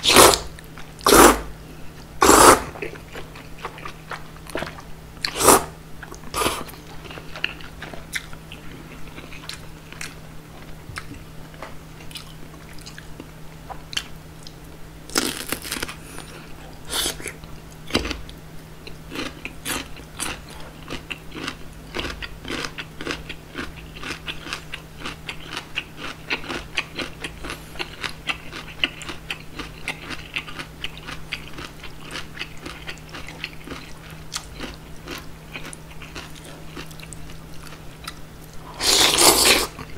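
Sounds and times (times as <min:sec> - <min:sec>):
noodles slurped: 0:00.0 - 0:00.4, 0:01.0 - 0:01.5, 0:02.2 - 0:02.8, 0:05.3 - 0:05.7, 0:06.3 - 0:06.7, 0:38.7 - 0:39.9
crunchy chewing: 0:00.0 - 0:01.5, 0:02.2 - 0:39.9.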